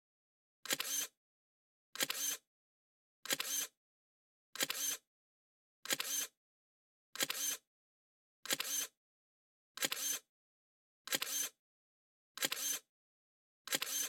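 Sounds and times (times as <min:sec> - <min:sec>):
camera shutter double click: 0:00.6 - 0:01.1, 0:02.0 - 0:02.4, 0:03.2 - 0:03.7, 0:04.6 - 0:05.0, 0:05.8 - 0:06.3, 0:07.2 - 0:07.6, 0:08.4 - 0:08.9, 0:09.8 - 0:10.2, 0:11.1 - 0:11.5, 0:12.4 - 0:12.8, 0:13.7 - 0:14.0.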